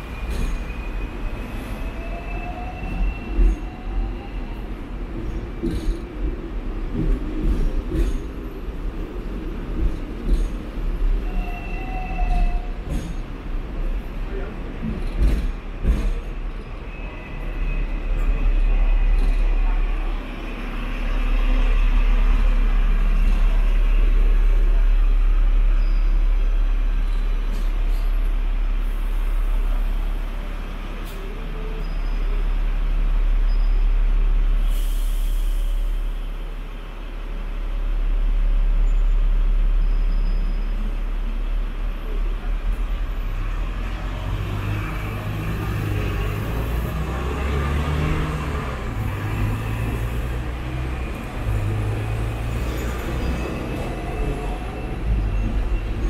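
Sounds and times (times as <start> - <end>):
tram rumbling on rails: 0.0 - 56.0
hiss of air: 34.6 - 36.1.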